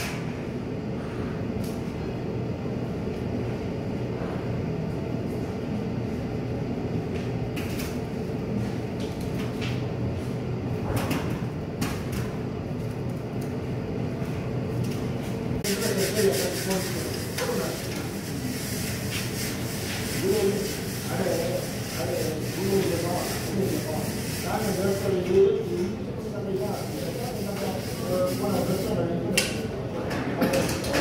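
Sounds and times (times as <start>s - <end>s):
low machine hum: 0.0s - 31.0s.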